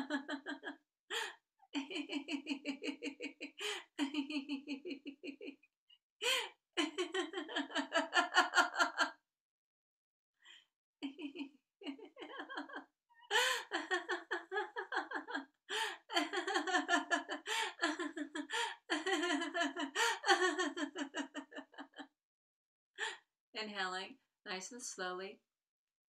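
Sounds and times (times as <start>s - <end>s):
woman laughing heartily: 0.0s - 5.6s, 6.2s - 9.1s, 11.0s - 22.0s.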